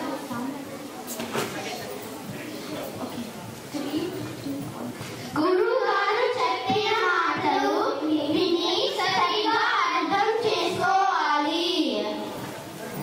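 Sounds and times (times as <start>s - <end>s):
children singing together: 5.4s - 12.4s.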